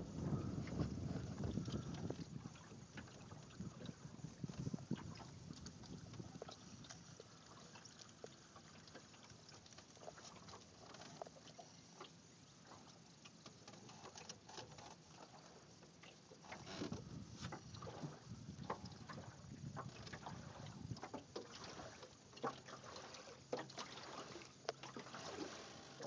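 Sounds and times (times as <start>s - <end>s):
water lapping against boat hull: 0.0s - 26.0s.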